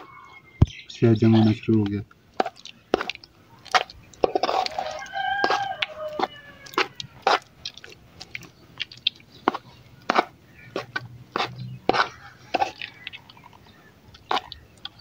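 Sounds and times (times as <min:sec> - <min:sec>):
knife scraping steel pot: 0:04.2 - 0:05.6
drawn-out bird call: 0:08.5 - 0:15.0.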